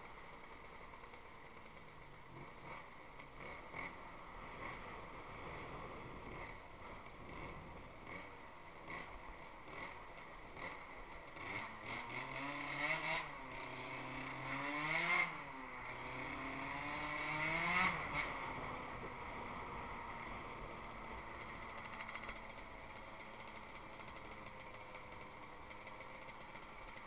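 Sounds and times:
road noise: 0.0s - 27.0s
scooter engine revving: 2.2s - 6.6s, 7.2s - 27.0s.

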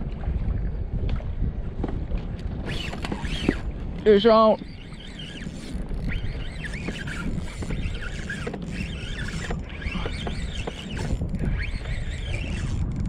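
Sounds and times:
water noise: 0.0s - 13.0s
wind: 0.0s - 13.0s
high squeaks: 2.7s - 3.7s, 4.4s - 13.0s.

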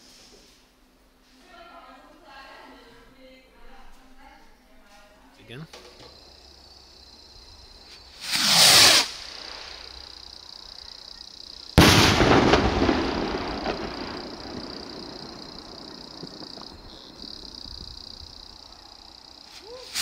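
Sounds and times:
firework rocket whoosh: 8.1s - 10.0s
firework bang: 8.2s - 10.0s, 11.8s - 18.5s.

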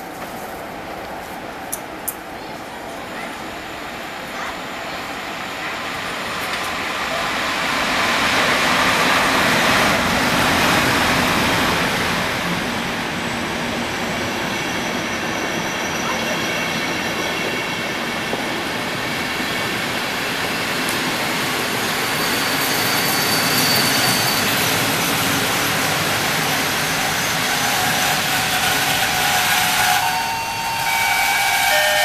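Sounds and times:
train rolling past: 0.0s - 32.0s
high brake squeal: 14.3s - 17.8s, 20.2s - 32.0s.

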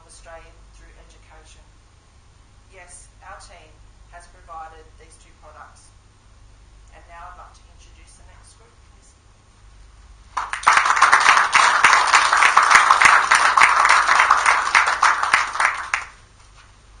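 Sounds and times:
audience applauding: 10.3s - 16.2s.

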